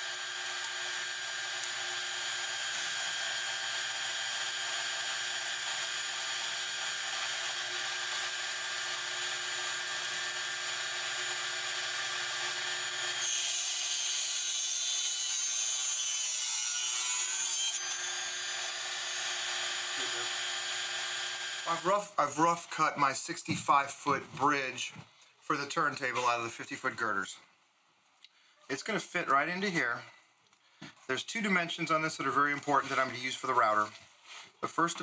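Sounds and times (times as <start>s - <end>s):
saw blade cutting plastic: 0.0s - 22.0s
table saw running: 0.0s - 22.0s.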